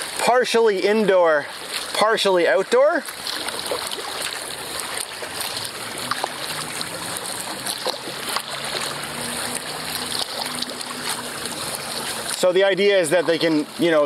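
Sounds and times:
water drips: 0.0 - 14.0
water splashing off kayak paddle: 0.0 - 14.0.

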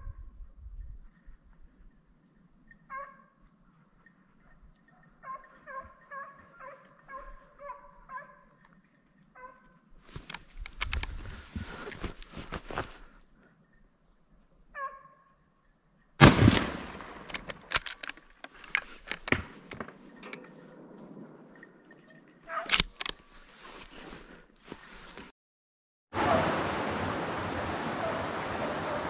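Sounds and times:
gunshots with echo: 16.2 - 17.5.

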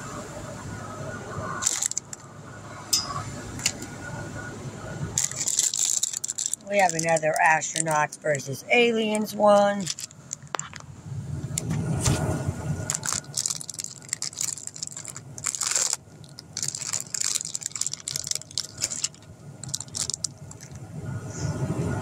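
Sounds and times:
plastic packet crinkling: 1.6 - 2.3, 5.2 - 8.1, 9.6 - 10.8, 12.8 - 20.8.

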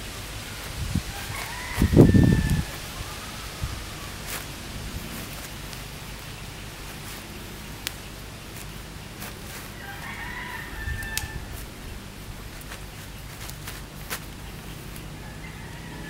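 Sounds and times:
background hiss: 0.0 - 16.0
rooster crowing: 0.4 - 6.6, 9.5 - 12.8, 14.6 - 16.0
sharp clicks: 4.2 - 15.2.

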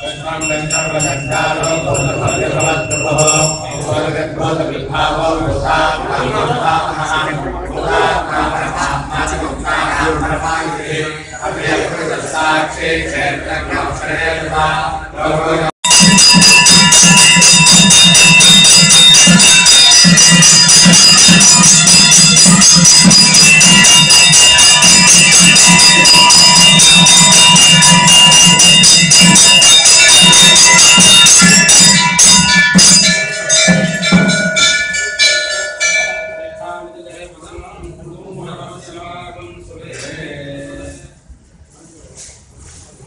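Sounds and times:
temple bells ringing rapidly: 0.0 - 4.5, 15.8 - 37.5
low pulsing beat: 15.9 - 34.6
single bell strokes: 15.9 - 37.3.

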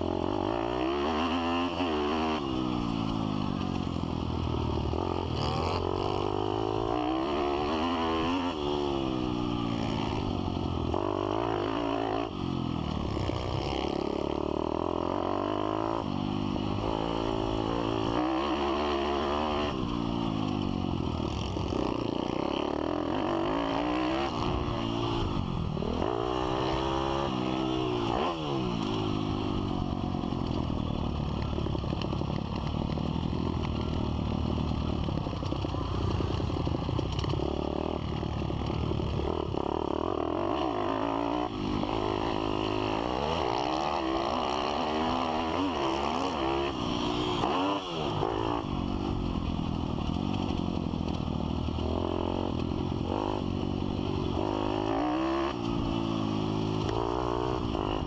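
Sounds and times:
pit bike engine revving: 4.8 - 30.4, 31.4 - 49.3.

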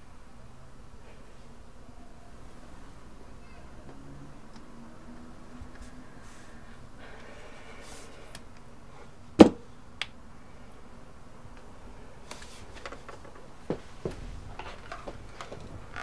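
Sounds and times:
thumps and knocks at a desk: 9.4 - 9.6.

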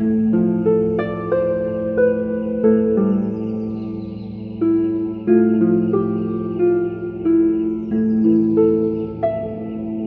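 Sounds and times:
calm slow background music: 0.0 - 10.0.

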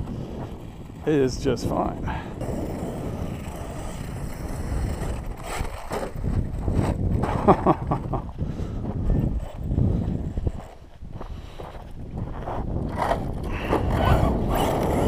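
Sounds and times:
rc truck running over dirt: 0.0 - 8.1, 8.8 - 15.0
wind rumbling on microphone: 0.0 - 15.0
electric motor whining: 12.9 - 15.0.

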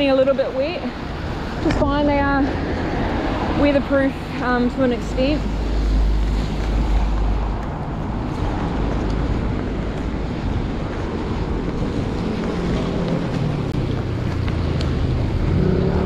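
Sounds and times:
tyres on wet road: 0.0 - 16.0
wind rumbling on microphone: 0.0 - 16.0.

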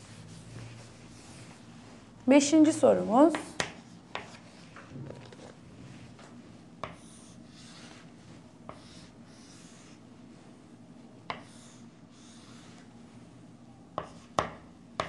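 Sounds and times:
chalk scratching on chalkboard: 0.0 - 1.9, 2.9 - 4.8, 6.8 - 10.1, 11.3 - 13.0, 14.0 - 14.5
chalk tapping on board: 3.3 - 4.4, 6.8 - 8.0, 8.7 - 9.9, 11.3 - 11.7, 14.0 - 15.0.

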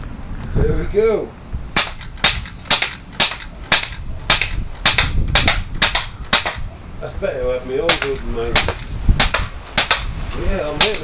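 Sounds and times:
bb gun shots: 1.8 - 6.7, 7.9 - 10.1.

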